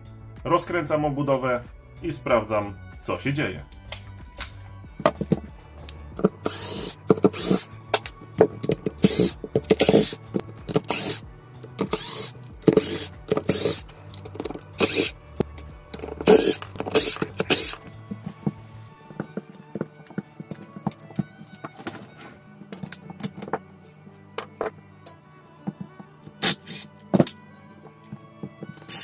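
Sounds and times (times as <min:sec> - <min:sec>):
music with bass and beat: 0:00.0 - 0:19.0.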